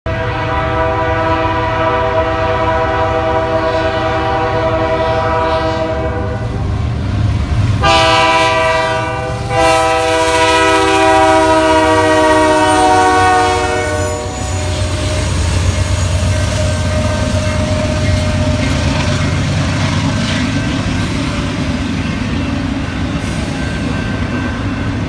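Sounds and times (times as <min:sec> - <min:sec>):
locomotive air horn blasts: 0:00.1 - 0:06.7, 0:07.8 - 0:19.1
train rumble: 0:00.1 - 0:25.0.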